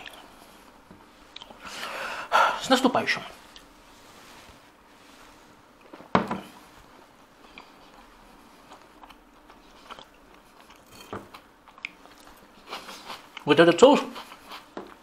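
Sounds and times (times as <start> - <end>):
person chewing: 0.0 - 1.8, 3.4 - 3.8, 7.3 - 15.0.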